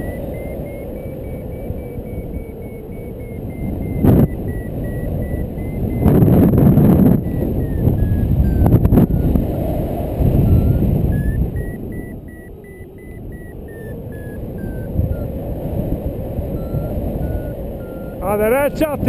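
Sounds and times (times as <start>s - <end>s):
variometer beeping: 0.0s - 19.0s
wind on microphone: 0.0s - 19.0s.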